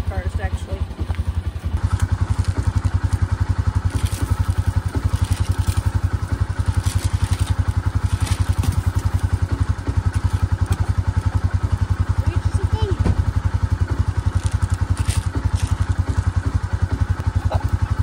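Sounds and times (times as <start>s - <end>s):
engine idling with rapid throb: 0.0s - 18.0s
light thumps: 13.0s - 13.5s.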